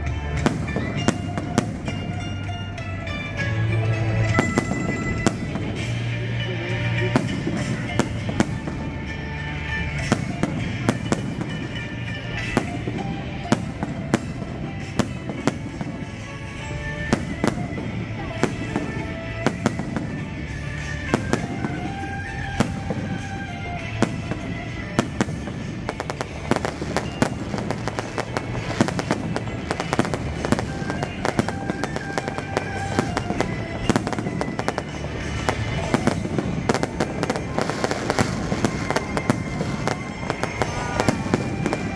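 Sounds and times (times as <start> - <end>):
fireworks bangs and crackles: 0.0 - 41.9.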